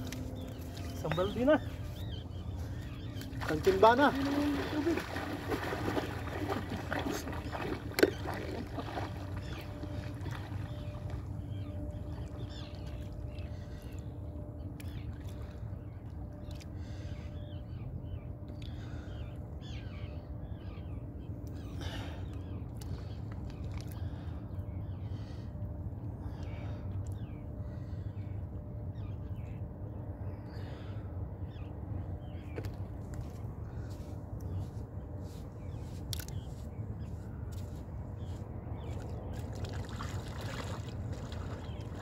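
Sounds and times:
low rumble with hum: 0.0s - 42.0s
sea water splashing: 2.7s - 11.5s, 39.3s - 42.0s.

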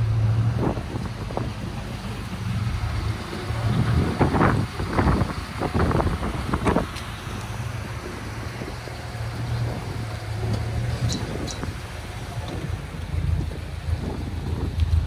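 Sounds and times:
car engine rumbling: 0.0s - 15.0s.

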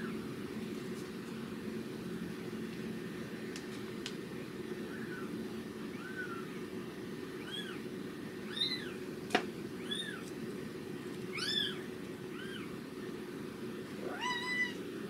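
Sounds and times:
kitten mewing: 14.0s - 14.8s.

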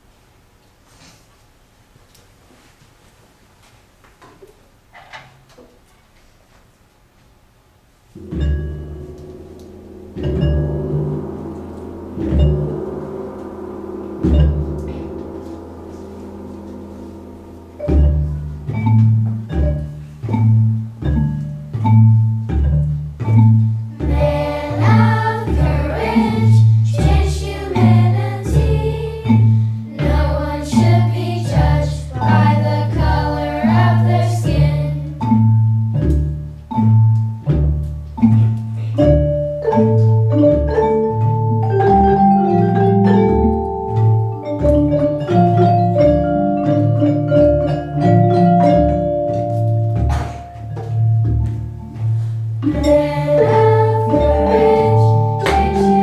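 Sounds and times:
held melody notes: 8.1s - 56.0s
xylophones playing: 8.2s - 56.0s
children singing: 24.0s - 35.2s, 52.6s - 56.0s.

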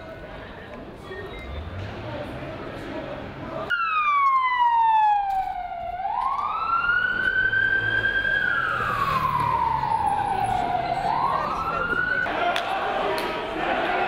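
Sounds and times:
ambulance siren wailing: 3.7s - 12.4s.

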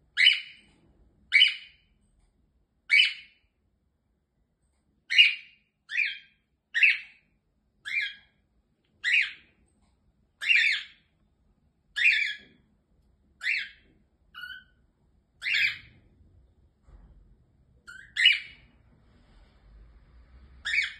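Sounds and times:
cockatiel calling: 0.2s - 0.6s, 1.3s - 1.8s, 2.9s - 3.4s, 5.1s - 7.2s, 7.8s - 8.3s, 9.0s - 9.5s, 10.4s - 11.0s, 11.9s - 12.6s, 13.4s - 14.8s, 15.4s - 16.0s, 17.8s - 18.7s, 20.6s - 20.9s.

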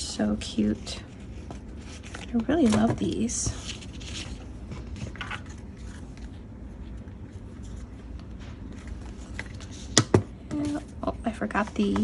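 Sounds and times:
low room hum: 0.0s - 12.0s
paper rustling: 0.9s - 10.0s.

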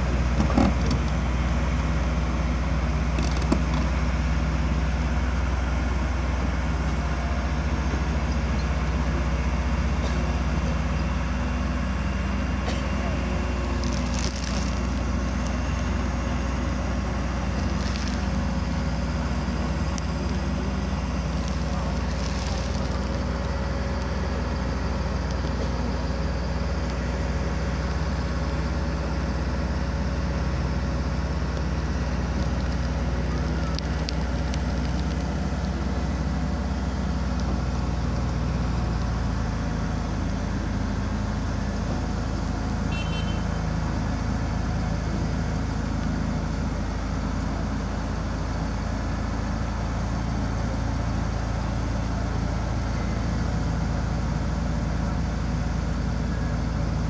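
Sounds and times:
excavator diesel engine running: 0.0s - 57.0s.

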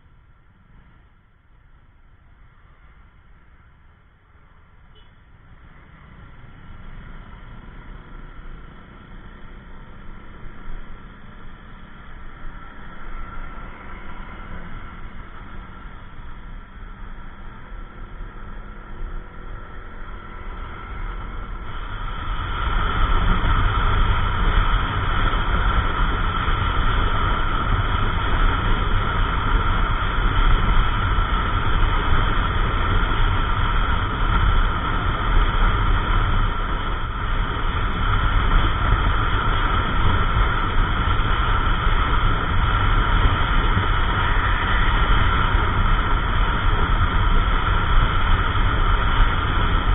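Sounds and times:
wind and road noise rushing: 0.0s - 49.9s.

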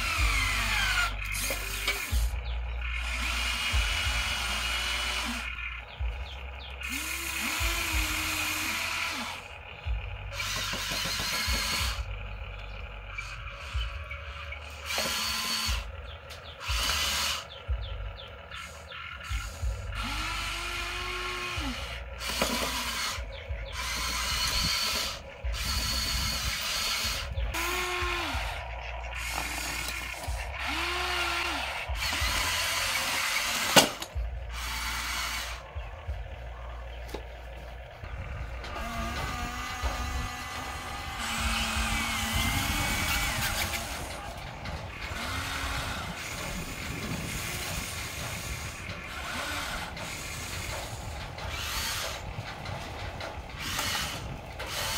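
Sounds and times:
gear rattle: 0.0s - 54.9s
toy electric motors whining: 0.0s - 54.9s.

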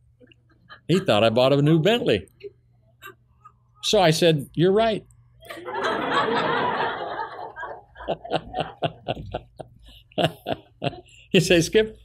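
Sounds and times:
audience laughing: 5.5s - 11.2s.

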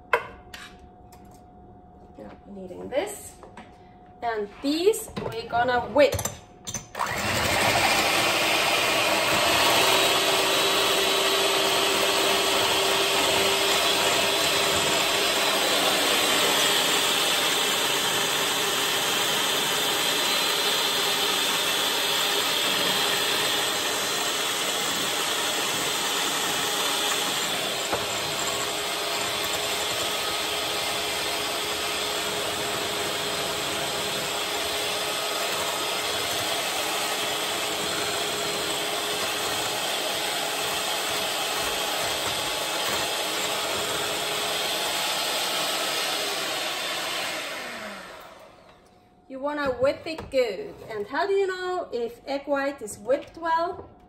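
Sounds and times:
electric hand mixer whipping: 7.0s - 48.9s.

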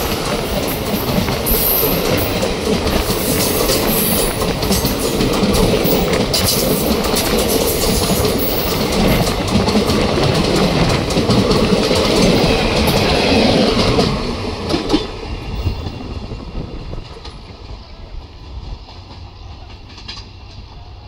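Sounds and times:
wheels clicking over rail joints: 0.0s - 16.0s
train wheels rumbling on track: 0.0s - 21.0s.

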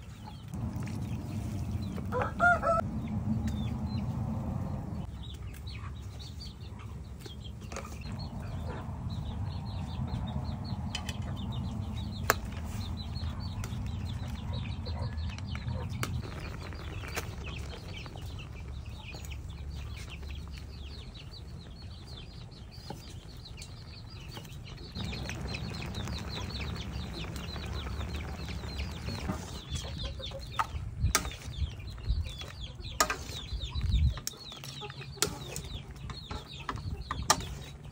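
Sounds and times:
broth boiling and bubbling: 0.0s - 5.1s, 15.2s - 32.0s
chickens clucking: 0.0s - 22.4s, 23.0s - 37.9s.

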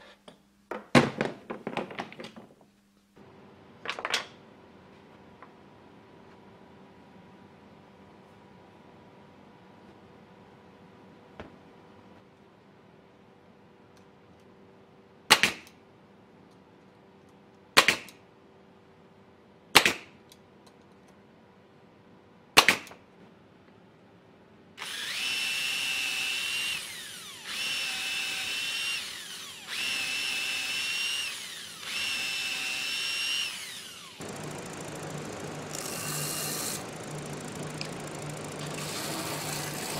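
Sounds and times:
nail gun shots: 15.3s - 15.7s, 17.8s - 18.2s, 19.8s - 20.2s, 22.6s - 23.0s
power drill boring into wood: 24.8s - 39.9s.

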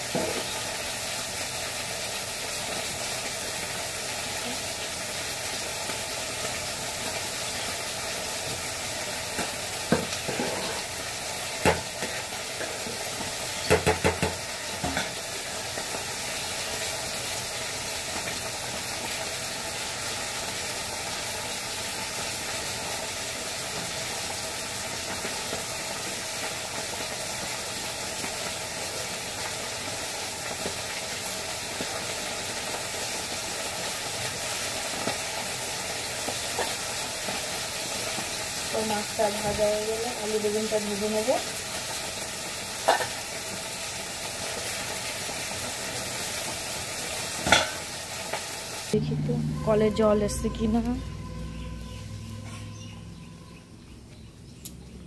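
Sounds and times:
fish sizzling in hot oil: 0.0s - 49.0s
spatula knocking and scraping pot: 9.9s - 10.8s.

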